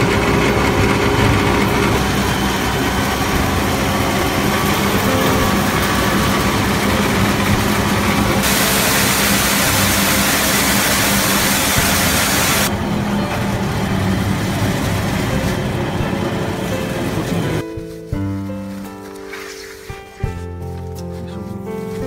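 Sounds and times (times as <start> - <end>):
mill machine hum: 0.0 - 17.6
grain grinding hiss: 8.4 - 12.7.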